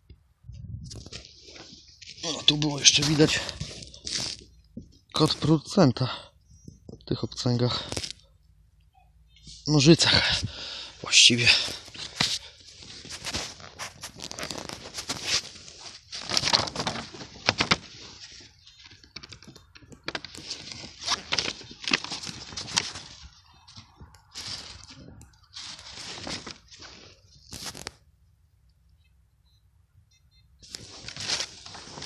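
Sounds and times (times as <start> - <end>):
dry leaves rustling and crackling: 12.7 - 28.0, 30.7 - 32.0.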